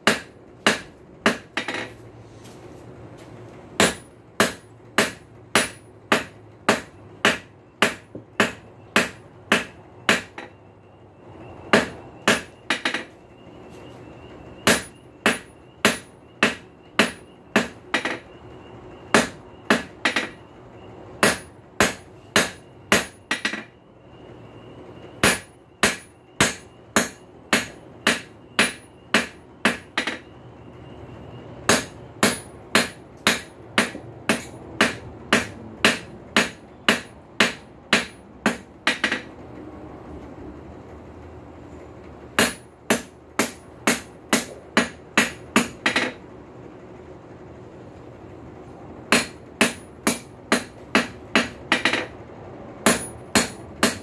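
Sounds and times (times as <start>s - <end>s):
hammer striking steel on anvil: 0.0s - 2.0s, 3.8s - 10.6s, 11.7s - 13.1s, 14.6s - 18.2s, 19.1s - 20.4s, 21.2s - 23.7s, 25.2s - 30.3s, 31.7s - 39.3s, 42.4s - 46.2s, 49.1s - 52.1s, 52.8s - 54.0s
anvil ringing: 31.7s - 39.3s, 52.8s - 54.0s.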